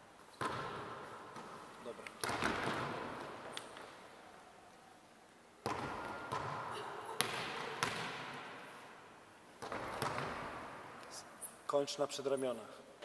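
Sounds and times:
ball bouncing on wooden floor: 0.4s - 1.6s, 2.2s - 3.6s, 5.6s - 8.5s, 9.6s - 10.6s
volleyballs knocking off forearms: 0.4s - 4.0s, 5.6s - 8.6s, 9.6s - 10.8s.

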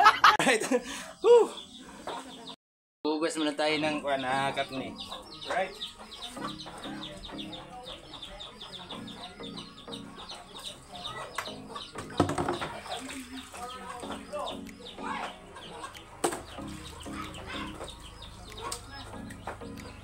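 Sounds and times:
birds high chirps: 0.7s - 2.6s, 3.2s - 20.0s
bird clucking calls: 3.4s - 20.0s
sharp knocks: 11.9s - 12.8s.

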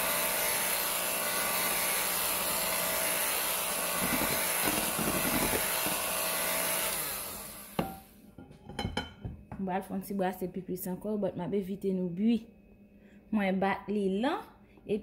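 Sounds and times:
electric hand mixer whirring: 0.0s - 8.1s.

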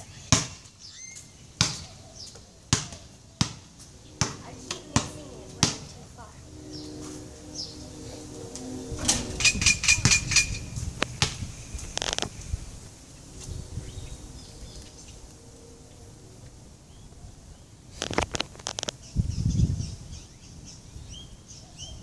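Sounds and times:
ball bouncing on concrete: 0.3s - 0.6s, 1.6s - 5.9s, 11.2s - 11.4s.

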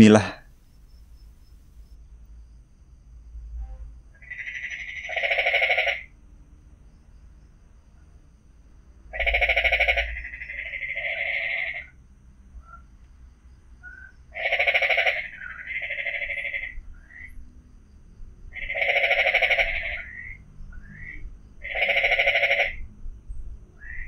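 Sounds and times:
frog croaking: 4.2s - 6.1s, 9.1s - 12.0s, 13.8s - 17.4s, 18.5s - 22.8s, 23.8s - 24.0s.

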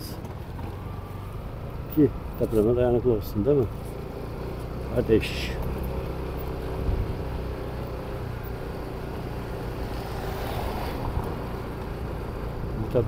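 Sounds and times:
tyre and road noise: 0.0s - 13.0s
vehicle engine drone: 0.0s - 13.0s
car passing by: 9.8s - 11.5s.

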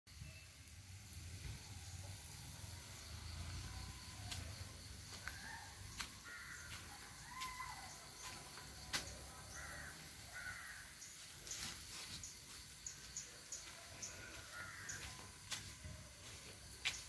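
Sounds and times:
crows cawing: 5.3s - 8.4s, 9.5s - 11.2s, 14.0s - 15.4s.

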